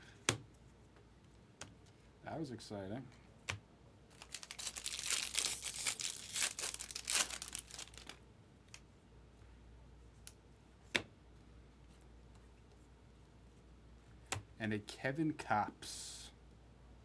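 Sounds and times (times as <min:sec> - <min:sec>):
foil wrapper tearing and crinkling: 0:04.1 - 0:08.2.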